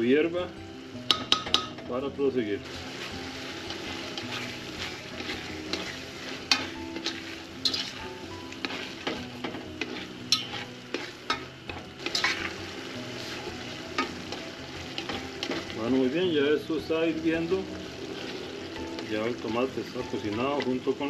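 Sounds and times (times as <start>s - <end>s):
tomato sauce sizzling in a pot: 0.0s - 21.0s
ladle scraping and knocking pot: 3.7s - 12.6s.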